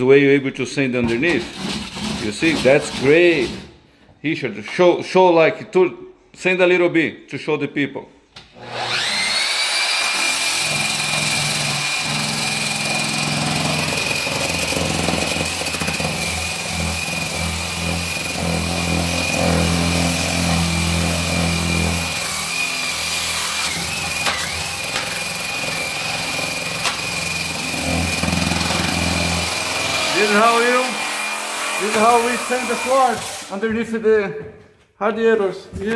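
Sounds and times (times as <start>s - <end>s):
floor sander motor: 8.6s - 33.5s.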